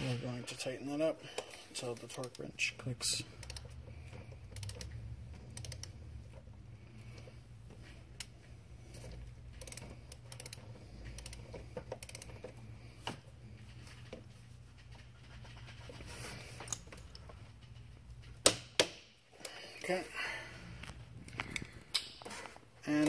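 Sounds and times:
steady low hum: 0.0s - 23.0s
ratchet wrench clicking: 3.4s - 3.8s, 4.4s - 6.0s, 9.5s - 12.6s.

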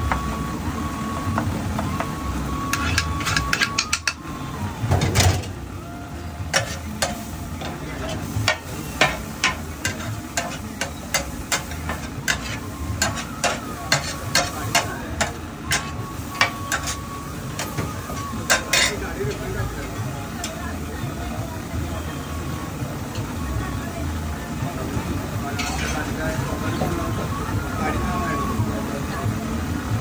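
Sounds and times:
metal spatula clanking on griddle: 2.7s - 4.2s, 6.5s - 17.0s, 17.6s - 19.1s, 25.6s - 26.2s.

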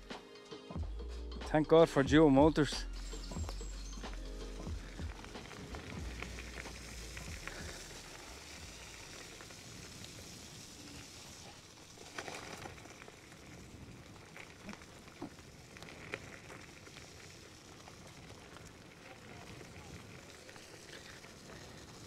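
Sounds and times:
low rumble: 2.0s - 9.1s
tyres rolling over wet gravel: 4.6s - 22.0s.

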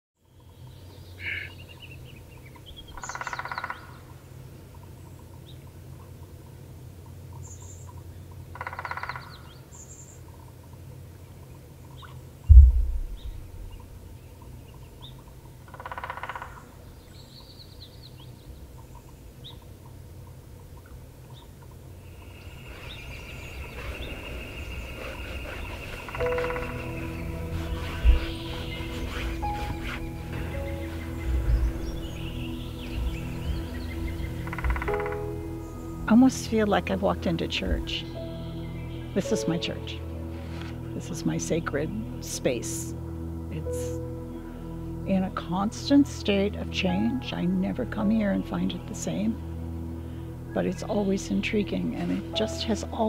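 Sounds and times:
bird calling: 1.2s - 4.2s, 22.2s - 35.9s
low steady hum: 9.5s - 15.7s
deep thump: 12.5s - 14.0s
music with held tones: 26.0s - 53.0s.

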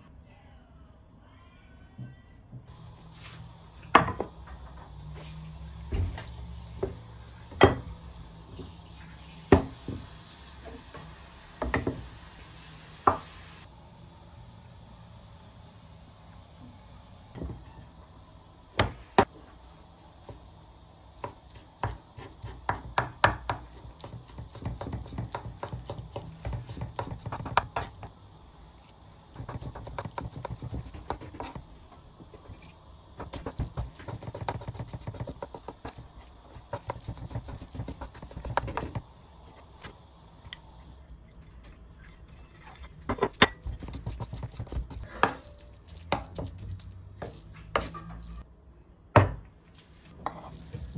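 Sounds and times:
knife chopping on wooden board: 21.2s - 27.9s.

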